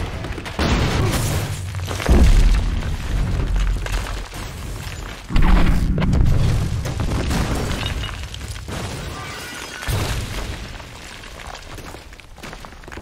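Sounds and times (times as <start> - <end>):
rumble with crackling debris: 0.0 - 13.0
explosion boom: 5.3 - 7.8.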